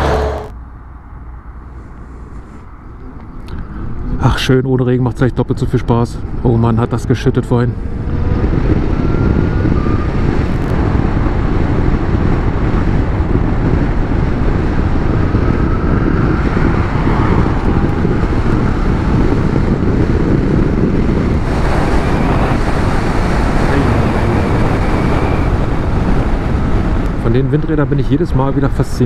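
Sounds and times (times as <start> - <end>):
wind rush and road noise: 0.0 - 29.0
electric motor whine: 17.1 - 26.3.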